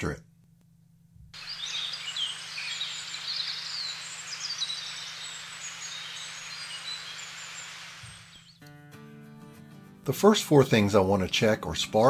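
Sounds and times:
outdoor ambient hiss: 0:00.0 - 0:08.6
small birds chirping: 0:01.4 - 0:08.6.

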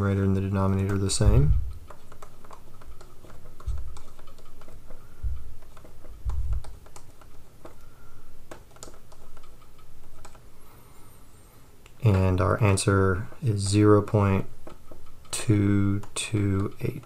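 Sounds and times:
stylus tapping on tablet: 0:00.7 - 0:10.4
dull low knocks: 0:06.2 - 0:06.8.

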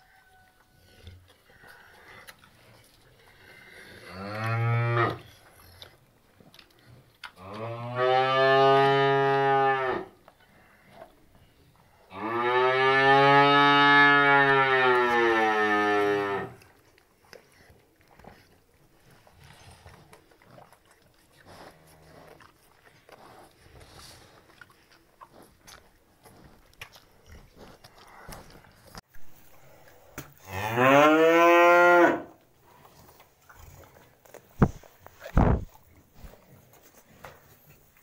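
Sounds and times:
calves lapping from bowl: 0:00.0 - 0:04.6, 0:16.5 - 0:30.4, 0:32.4 - 0:38.0
cow mooing: 0:12.1 - 0:16.6, 0:30.4 - 0:32.3.

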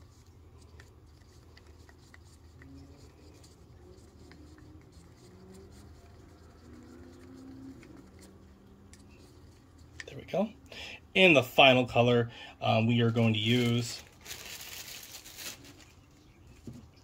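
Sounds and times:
stir stick scraping in cup: 0:00.0 - 0:10.2.

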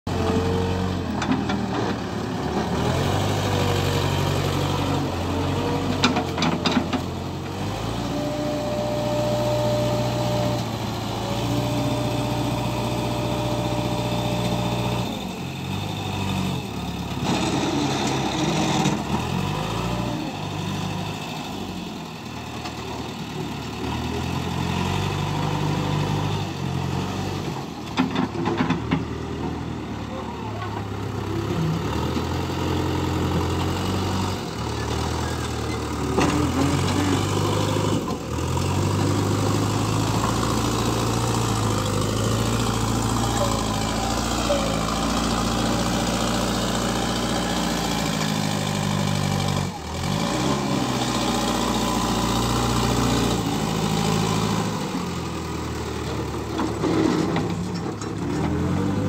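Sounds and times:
diesel engine under load: 0:00.1 - 0:59.0.

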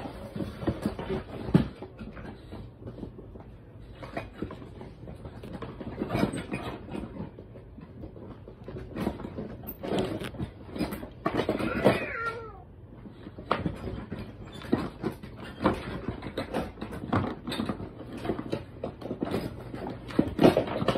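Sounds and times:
toy cat meowing: 0:11.5 - 0:12.8.

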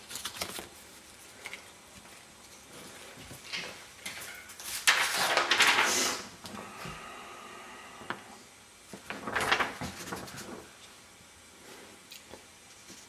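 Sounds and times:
paper and plastic crinkling: 0:00.0 - 0:06.2, 0:08.9 - 0:10.9.

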